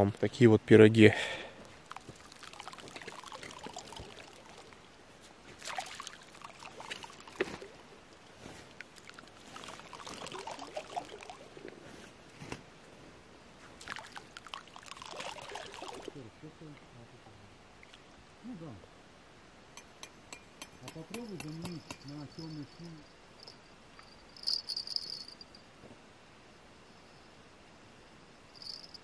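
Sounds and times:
water trickling and splashing: 0:01.4 - 0:11.9, 0:13.7 - 0:16.2.

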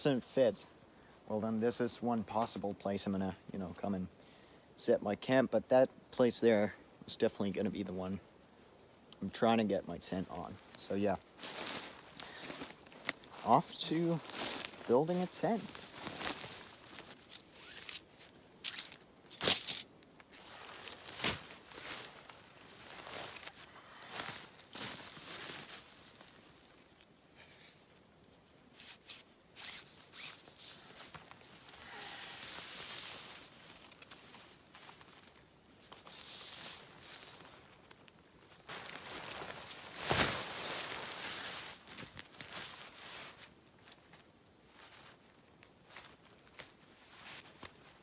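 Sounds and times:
camping gear crunching and rustling: 0:10.0 - 0:48.0.

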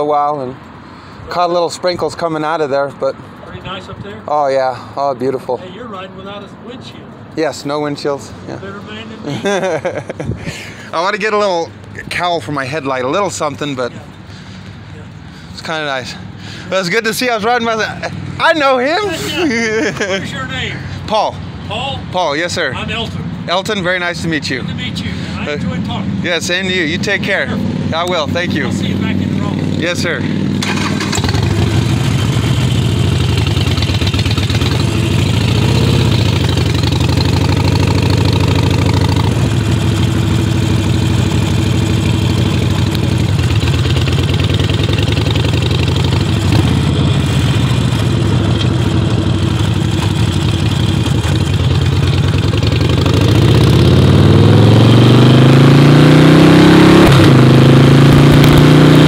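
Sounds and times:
motorcycle engine accelerating: 0:23.9 - 0:59.0.

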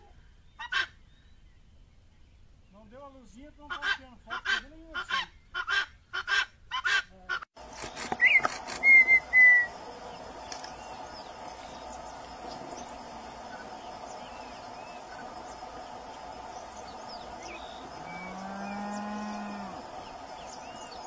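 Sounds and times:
steady background hiss: 0:00.0 - 0:06.2, 0:07.6 - 0:21.0
guineafowl cackling: 0:00.6 - 0:01.0, 0:03.7 - 0:09.9
bird whistles: 0:08.0 - 0:09.7.

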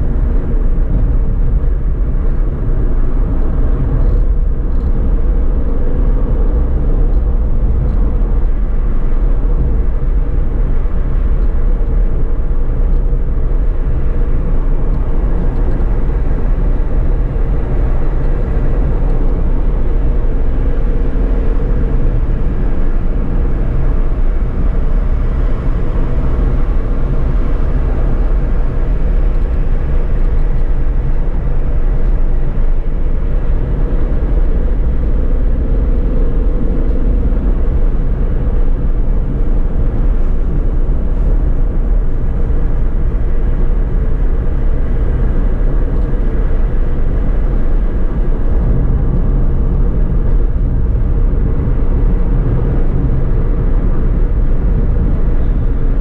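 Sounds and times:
steady hum: 0:00.0 - 0:56.0
tyre and engine rumble in car: 0:00.0 - 0:56.0.

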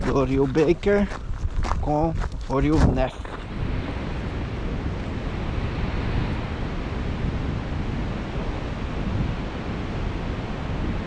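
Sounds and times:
wind noise on microphone: 0:00.0 - 0:11.0.

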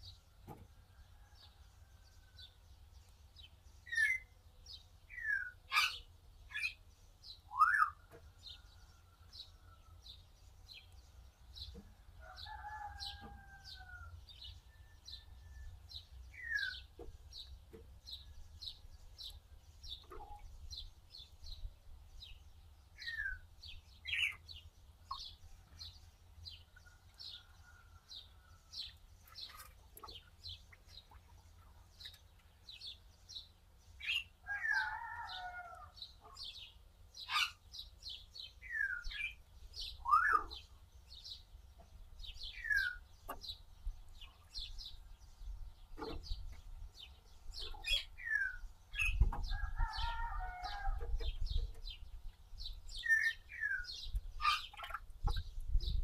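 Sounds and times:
birds chirping: 0:00.0 - 0:56.0
two-toned bird call: 0:07.5 - 0:08.0, 0:40.0 - 0:40.6.

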